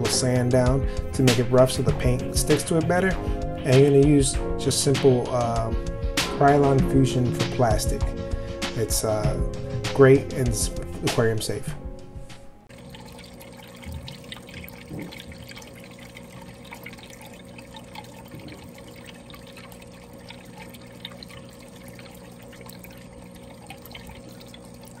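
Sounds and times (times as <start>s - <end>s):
steady low hum: 0.0s - 25.0s
small bubbly ticks: 12.7s - 25.0s
water trickling onto water surface: 12.7s - 25.0s.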